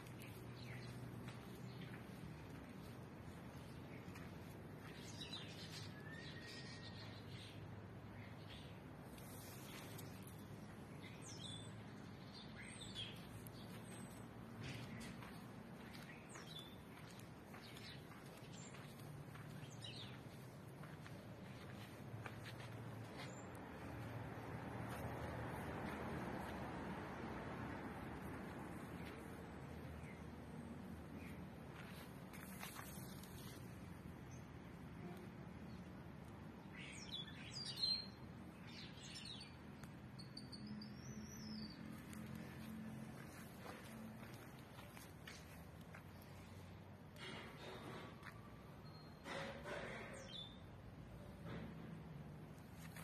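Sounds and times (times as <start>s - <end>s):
birds chirping: 9.4s - 24.1s.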